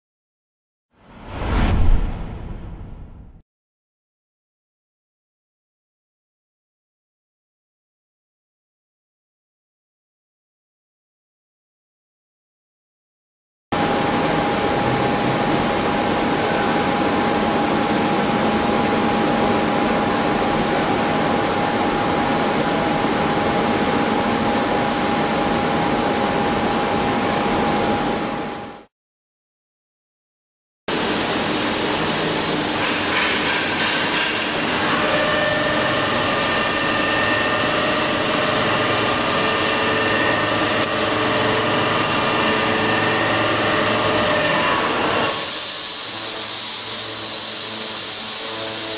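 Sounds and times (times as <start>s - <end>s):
machine noise with steady tone: 13.8s - 28.9s, 30.9s - 48.9s
milling cutter cutting steel: 32.7s - 48.9s.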